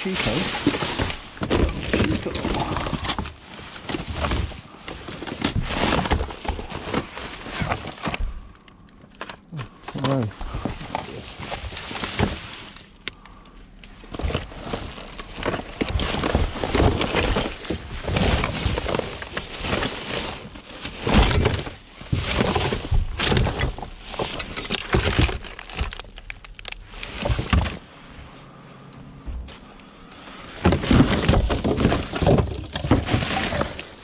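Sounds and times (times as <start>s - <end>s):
items knocking and clattering: 0.0s - 8.4s, 14.1s - 27.8s, 30.4s - 34.0s
plastic bags rustling: 0.0s - 34.0s.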